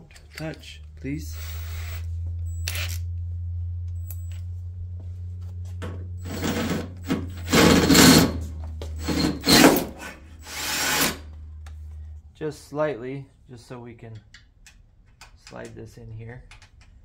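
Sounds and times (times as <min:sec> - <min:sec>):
steady low hum: 0:00.0 - 0:17.0
cordless drill drilling metal: 0:01.3 - 0:03.0, 0:06.2 - 0:08.4, 0:09.0 - 0:11.2.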